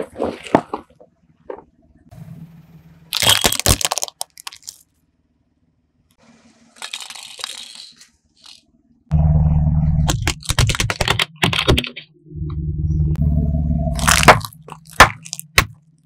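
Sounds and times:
plastic toys cracking under tyre: 0:03.1 - 0:05.0, 0:10.1 - 0:11.9, 0:14.0 - 0:15.8
low rumble with crackling: 0:09.1 - 0:16.0.

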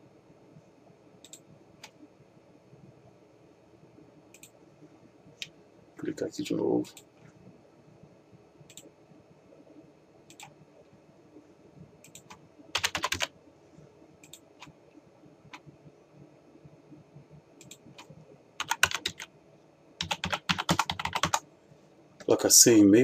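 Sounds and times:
computer keyboard typing: 0:10.3 - 0:10.6, 0:12.0 - 0:13.3, 0:17.6 - 0:19.3, 0:20.0 - 0:21.4.

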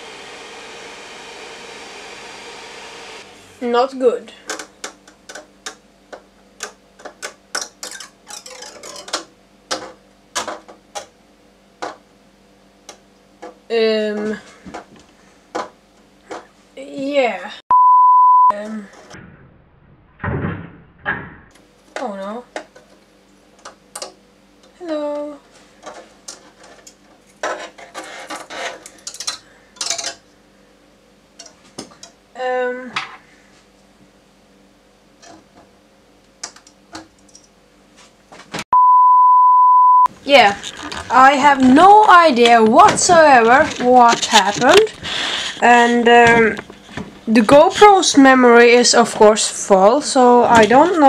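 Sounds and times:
thin plastic crackling and cracking: 0:40.2 - 0:45.6.

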